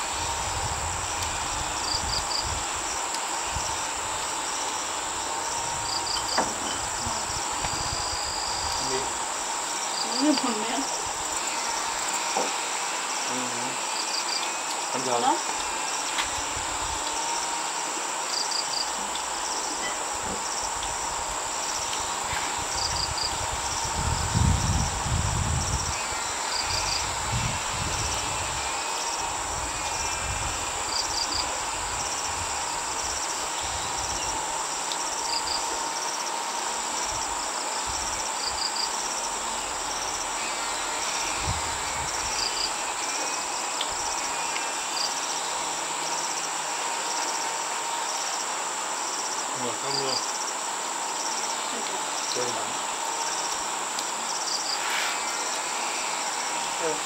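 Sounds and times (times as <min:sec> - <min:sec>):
insects chirping: 0:00.0 - 0:57.0.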